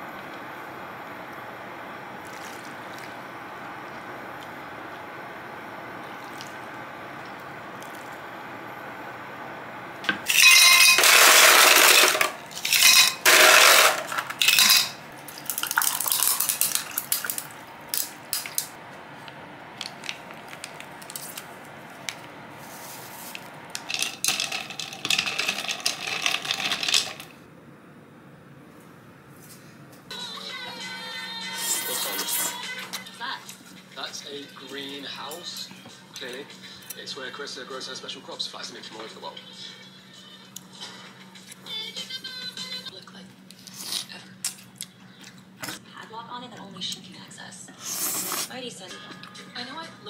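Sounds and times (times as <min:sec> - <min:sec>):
ice and glassware clattering: 0:10.3 - 0:17.4, 0:23.8 - 0:27.3
ice cubes clinking in glass: 0:10.3 - 0:17.5, 0:23.8 - 0:27.3.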